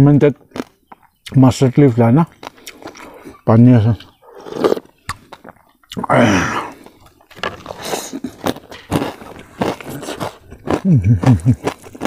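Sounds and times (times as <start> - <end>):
wet chewing with smacks: 2.3 - 3.4
short vocal sound: 6.0 - 6.8.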